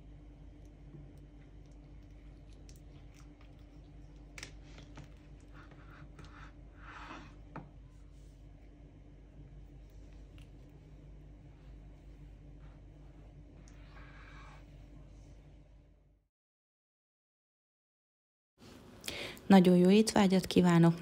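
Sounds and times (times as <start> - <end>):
low steady hum: 0.0 - 16.2
knife scraping through cake: 5.8 - 7.4.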